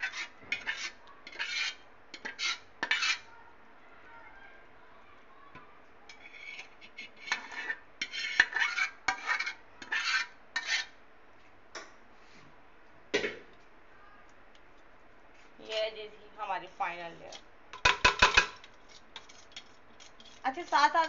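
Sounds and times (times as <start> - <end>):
metal spoon scraping metal pan: 0.0 - 3.3, 6.1 - 11.0, 17.9 - 21.0.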